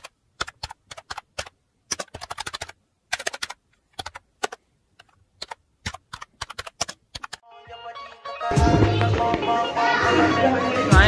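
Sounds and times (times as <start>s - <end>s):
rapid clicking of keys: 0.0s - 7.4s.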